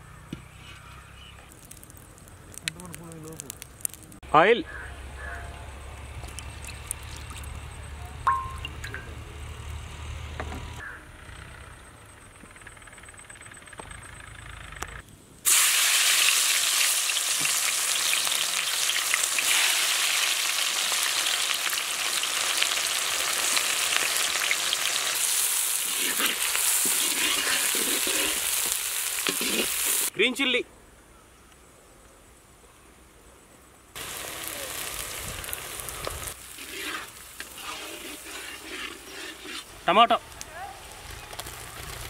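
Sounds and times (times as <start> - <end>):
onions sizzling in hot oil: 15.5 - 30.1, 34.0 - 39.9
spatula turning food in wok: 25.3 - 30.1, 36.4 - 39.7.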